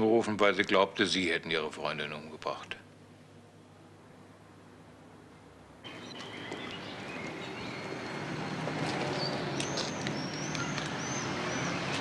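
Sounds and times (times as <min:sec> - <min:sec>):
steady background hiss: 0:00.0 - 0:11.8
birds chirping and whistling: 0:05.9 - 0:12.0
short curved bird calls: 0:09.0 - 0:12.0.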